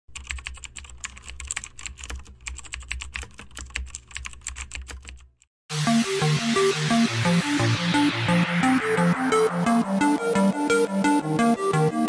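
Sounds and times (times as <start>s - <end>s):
electronic music: 5.7s - 12.0s.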